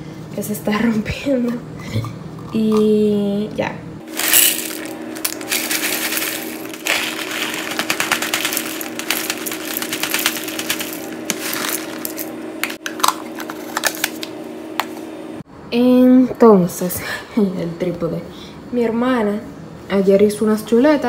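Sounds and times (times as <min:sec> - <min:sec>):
cereal pouring into plastic container: 0:04.1 - 0:12.3.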